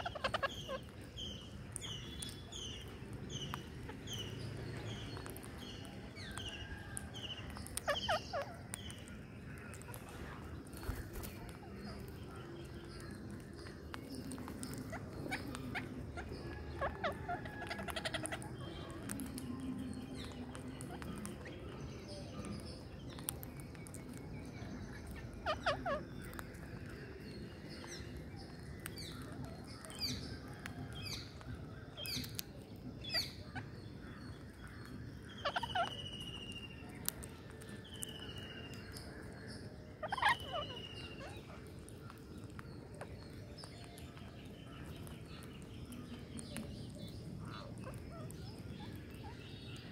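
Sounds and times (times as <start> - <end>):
parakeets screeching: 0.0 - 4.6, 7.6 - 10.0, 14.2 - 19.2, 25.0 - 27.0, 35.3 - 37.3, 40.0 - 42.6, 46.6 - 49.4.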